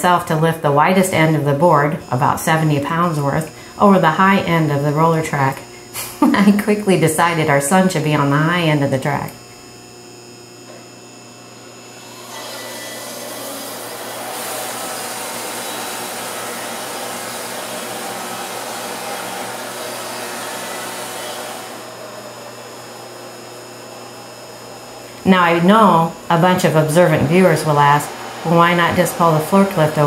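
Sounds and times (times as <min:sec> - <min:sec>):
band sawmill sawing log: 0:12.0 - 0:23.4, 0:24.3 - 0:30.0.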